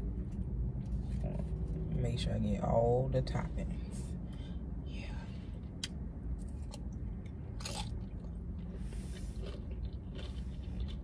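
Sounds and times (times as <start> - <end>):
person crunching tortilla chip: 6.4 - 11.0.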